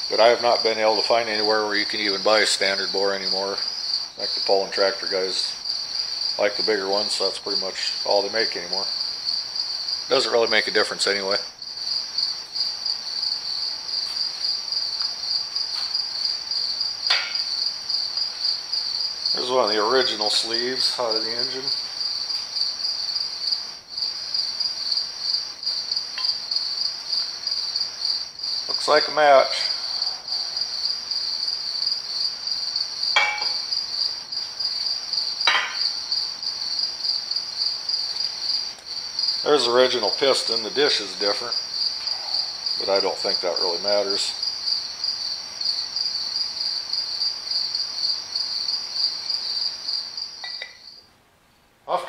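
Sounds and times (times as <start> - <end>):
cricket chirping: 0.0 - 52.0
metal part knocking on table: 17.1 - 17.4, 33.2 - 33.6, 35.5 - 35.8, 50.4 - 50.8.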